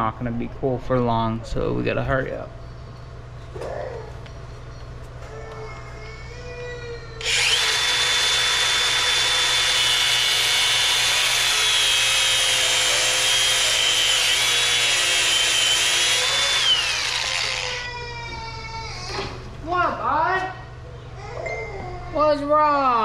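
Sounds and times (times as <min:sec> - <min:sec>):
angle grinder grinding: 0:07.2 - 0:17.9
grinder spinning down: 0:07.2 - 0:17.9.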